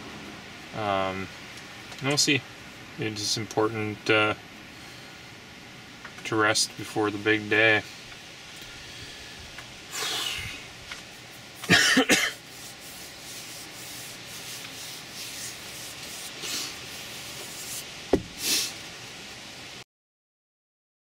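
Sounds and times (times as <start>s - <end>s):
man exhaling: 8.7s - 10.7s, 18.4s - 18.8s
hand rubbing face and hair: 9.9s - 18.8s
man coughing: 11.7s - 12.4s.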